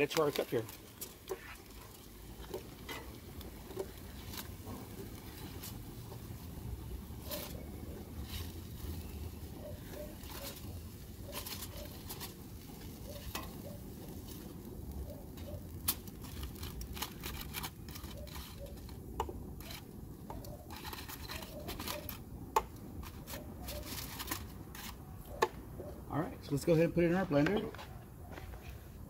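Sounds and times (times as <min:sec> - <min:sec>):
metal tongs clicking on foil: 0:00.0 - 0:06.4, 0:10.0 - 0:14.0, 0:15.3 - 0:25.0
foil crinkling: 0:00.0 - 0:06.5, 0:07.2 - 0:14.6, 0:15.3 - 0:22.2, 0:22.9 - 0:25.1.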